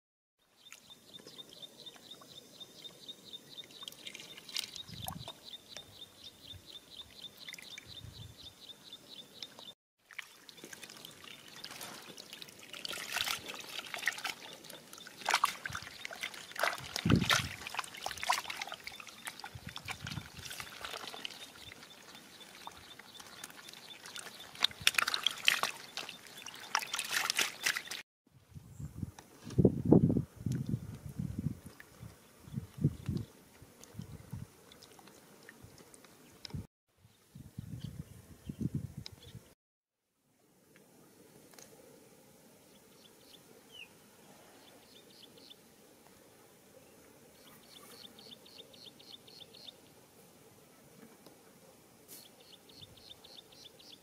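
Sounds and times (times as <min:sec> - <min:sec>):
water trickling: 0:09.4 - 0:28.0
fish flopping and splashing: 0:10.0 - 0:28.0.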